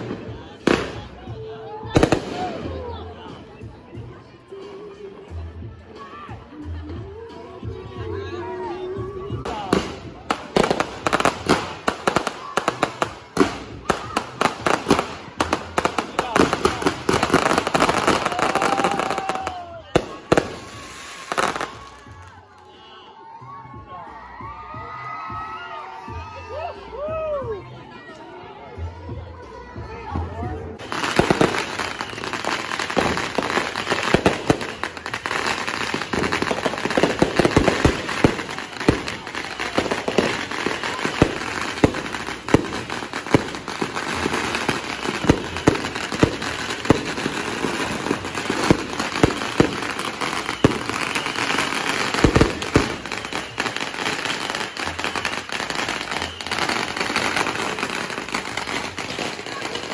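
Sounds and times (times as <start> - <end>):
fireworks crackling: 0.0 - 3.4, 9.3 - 22.6, 30.8 - 59.9
firework bangs: 9.5 - 22.0, 30.8 - 59.9.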